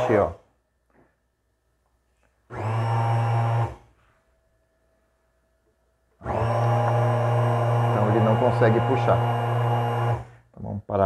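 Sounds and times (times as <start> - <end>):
blender motor straining: 0.0 - 0.4, 2.5 - 3.9, 6.2 - 10.4.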